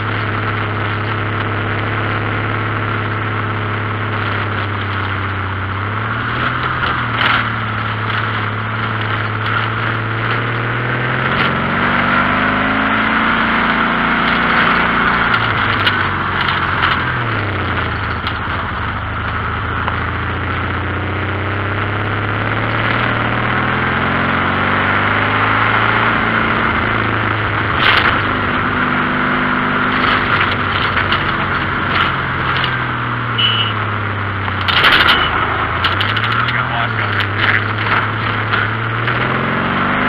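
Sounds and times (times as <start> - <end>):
dune buggy engine running: 0.0 - 40.0
steady rushing noise: 0.0 - 40.0.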